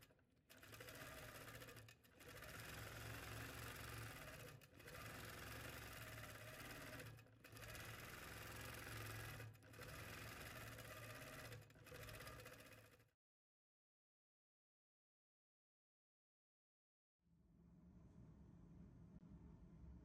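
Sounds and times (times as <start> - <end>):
quilting machine humming and whirring: 0.1 - 13.0.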